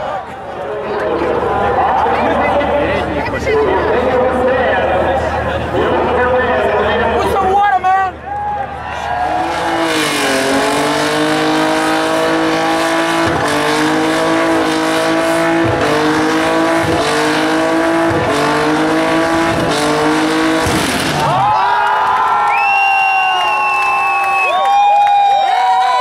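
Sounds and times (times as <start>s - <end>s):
tires spinning: 8.6s - 21.8s
car engine at high revs: 9.2s - 21.4s.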